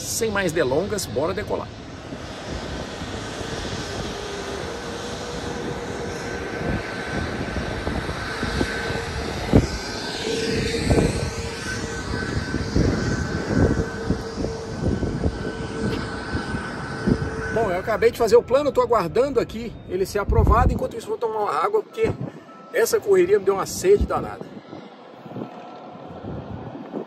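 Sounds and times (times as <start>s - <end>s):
aircraft engine whine and rumble: 0.0s - 27.0s.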